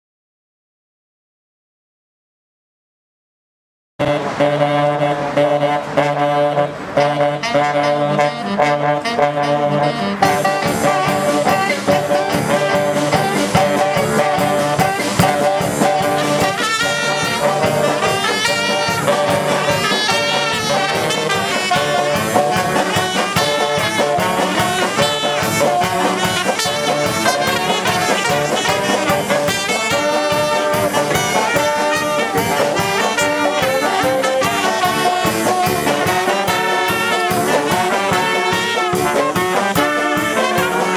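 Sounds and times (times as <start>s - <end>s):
brass band playing jazz: 4.0s - 40.9s
drum kit beat: 9.3s - 40.9s.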